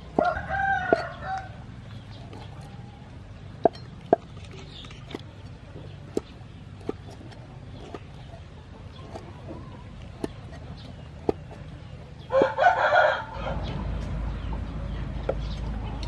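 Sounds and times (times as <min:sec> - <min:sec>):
cleaver chopping on wooden board: 0:00.0 - 0:01.1, 0:05.1 - 0:08.3, 0:09.0 - 0:11.7, 0:12.3 - 0:12.6.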